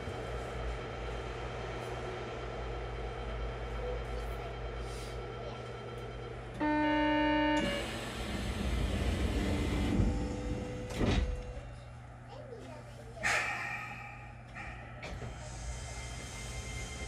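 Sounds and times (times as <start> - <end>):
train doors closing: 6.5 - 11.9, 13.2 - 17.0
door-closing buzzer tone: 6.6 - 8.0.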